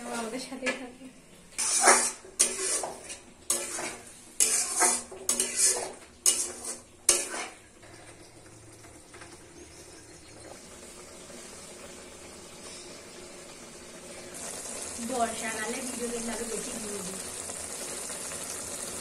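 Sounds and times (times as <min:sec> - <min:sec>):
low frying sound: 0:00.0 - 0:19.0
metal spoon scraping pan: 0:01.5 - 0:08.1.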